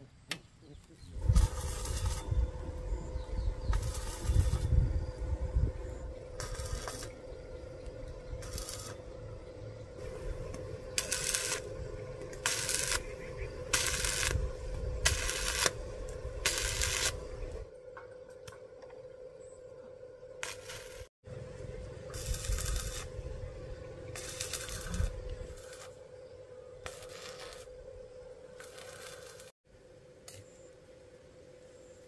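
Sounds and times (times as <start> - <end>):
welding arc crackling: 1.2 - 17.7, 20.4 - 21.1, 22.0 - 23.5, 24.1 - 26.1, 26.8 - 27.8, 28.5 - 29.5
steady hum: 1.2 - 32.0.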